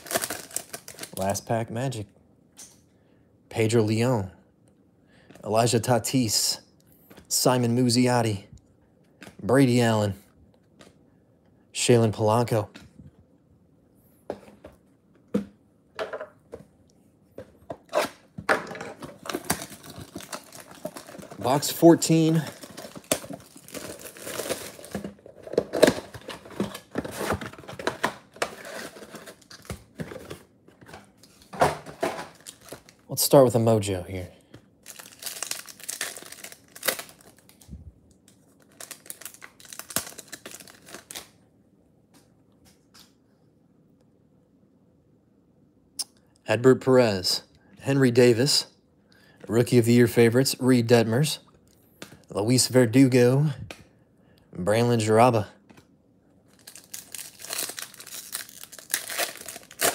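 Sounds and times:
foil wrapper crinkling and tearing: 0:00.0 - 0:01.4, 0:19.0 - 0:27.6, 0:28.3 - 0:29.8, 0:32.3 - 0:33.0, 0:34.8 - 0:37.7, 0:38.6 - 0:41.4, 0:56.5 - 0:59.9.

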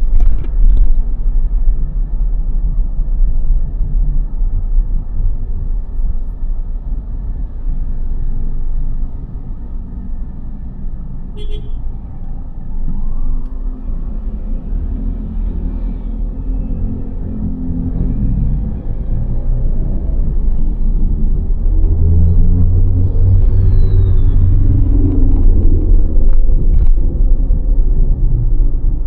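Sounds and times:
cars passing: 0:06.9 - 0:29.0.

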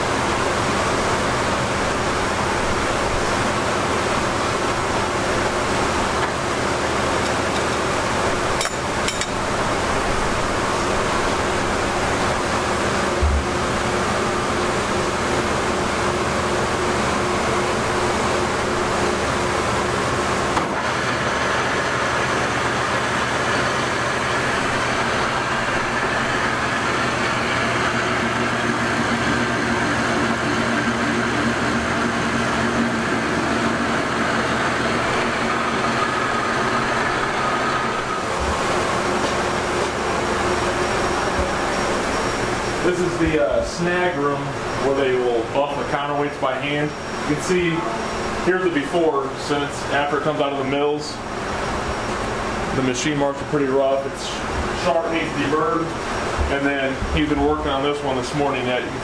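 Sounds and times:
coolant spraying: 0:00.0 - 0:45.2
industrial lathe machining: 0:00.0 - 0:59.0
machinery hum: 0:00.0 - 0:59.0.

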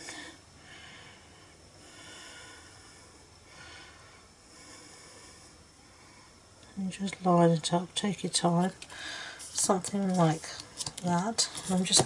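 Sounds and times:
faint breathing: 0:00.0 - 0:06.7, 0:08.9 - 0:09.6.

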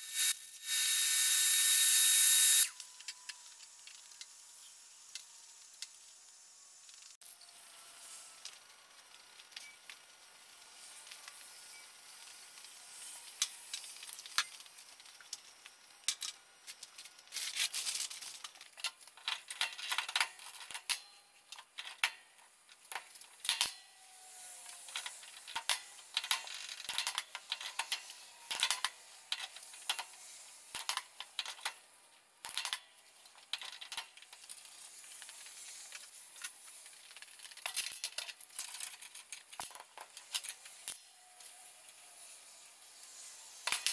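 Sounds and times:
welding arc crackling: 0:00.0 - 0:02.8, 0:24.6 - 0:43.9.

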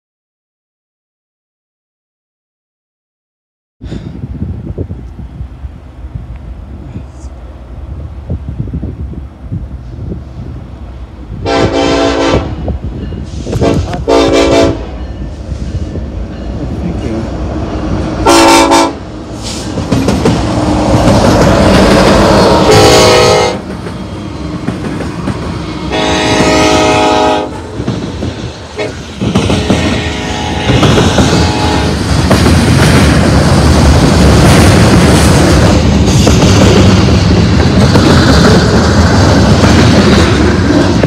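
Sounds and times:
diesel locomotive engines: 0:03.8 - 0:41.0
train wheels on rails: 0:03.9 - 0:41.0
train horn blasts: 0:11.4 - 0:12.7, 0:13.3 - 0:15.2, 0:18.2 - 0:19.0, 0:22.5 - 0:23.6, 0:25.7 - 0:27.7, 0:28.7 - 0:32.0.

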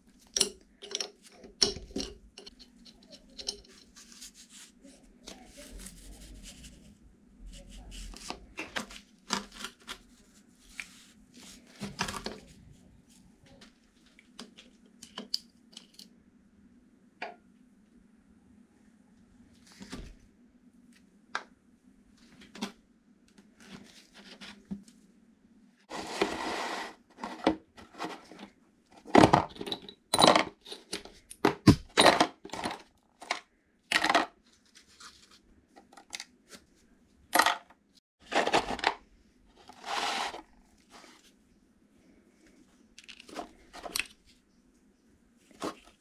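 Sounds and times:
metal parts clinking and scraping: 0:00.3 - 0:04.1, 0:29.2 - 0:33.4.

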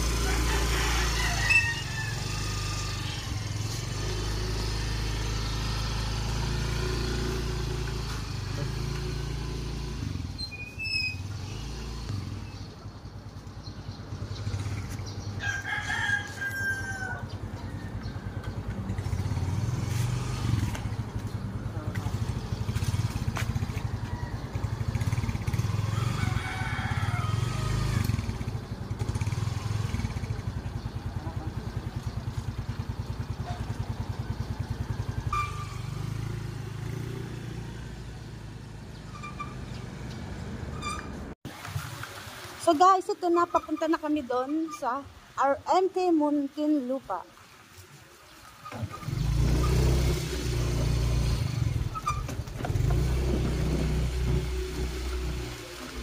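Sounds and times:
rooster crowing: 0:00.0 - 0:03.0, 0:15.4 - 0:18.5, 0:23.8 - 0:25.0, 0:25.7 - 0:28.0
motor scooter engine idling: 0:17.2 - 0:36.4.

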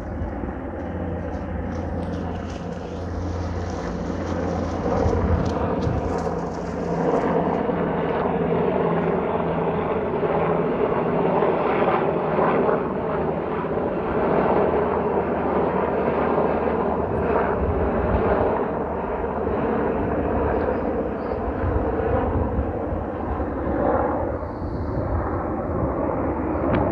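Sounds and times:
low rumble: 0:00.0 - 0:07.2
helicopters flying overhead: 0:00.0 - 0:26.9.

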